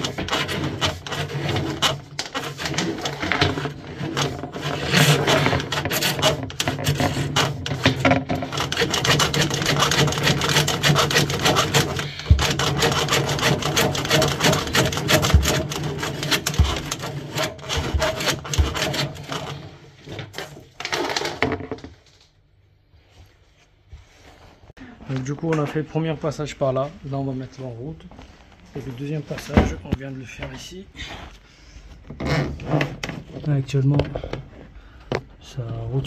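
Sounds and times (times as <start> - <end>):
drain snake scraping in pipe: 0.0 - 21.5.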